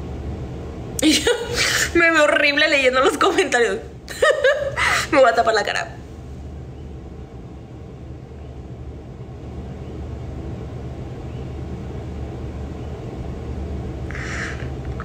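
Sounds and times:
breathy hiss: 0:01.4 - 0:02.0, 0:14.1 - 0:14.9.

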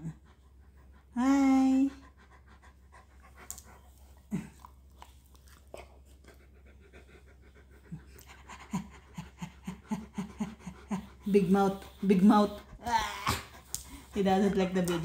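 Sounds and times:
dog panting: 0:00.0 - 0:15.0.

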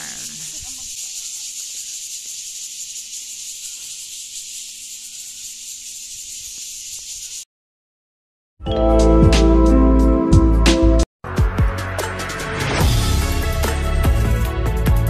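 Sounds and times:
cicadas buzzing: 0:00.0 - 0:07.5
loud music: 0:08.6 - 0:15.0.

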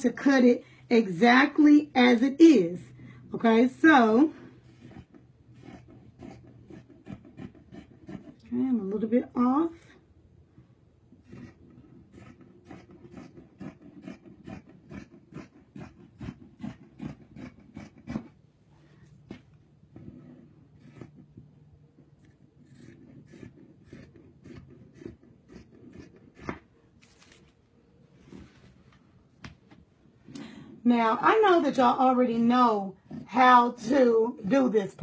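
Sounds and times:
scissors snipping fabric: 0:11.2 - 0:18.4, 0:20.7 - 0:26.7.

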